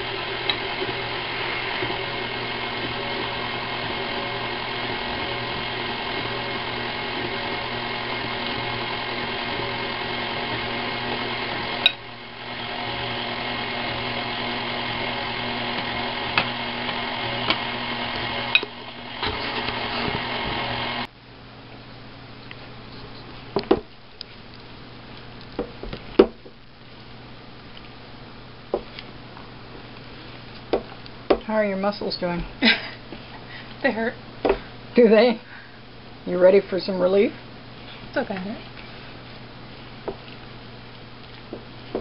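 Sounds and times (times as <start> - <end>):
stand mixer running: 0.0 - 21.1.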